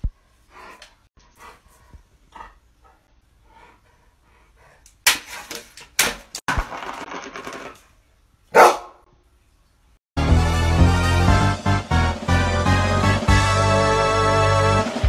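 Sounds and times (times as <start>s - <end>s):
food bowl clattering on wooden floor: 6.6s - 7.8s
dog barking: 8.5s - 9.0s.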